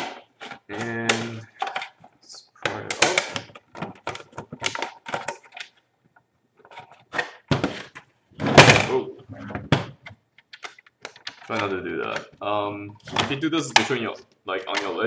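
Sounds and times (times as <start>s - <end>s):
plastic scraping: 6.6s - 15.0s.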